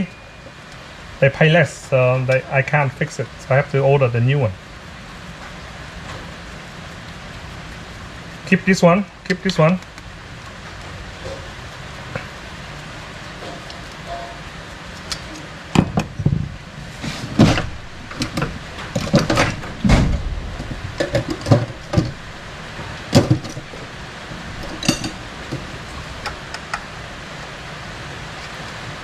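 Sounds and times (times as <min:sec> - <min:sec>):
metal parts knocking and clinking: 0:17.4 - 0:22.3, 0:23.1 - 0:23.9, 0:24.6 - 0:26.8.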